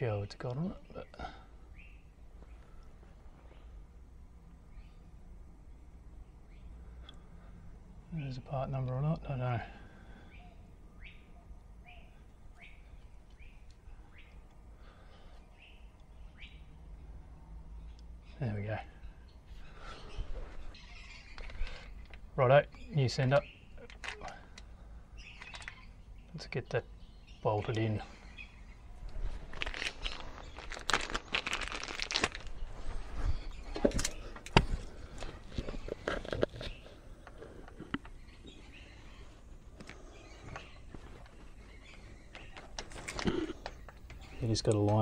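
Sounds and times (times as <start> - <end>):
bird chirping: 0.0 - 3.8, 4.6 - 45.0
plastic bag crinkling: 29.1 - 34.2.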